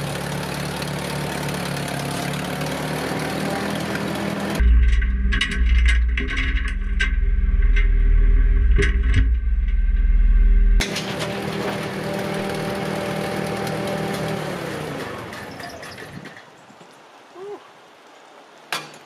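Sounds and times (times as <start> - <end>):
tractor engine idling: 0.0 - 15.6
heavy low rumble: 4.5 - 10.9
metal clanks and clinks: 4.6 - 9.8.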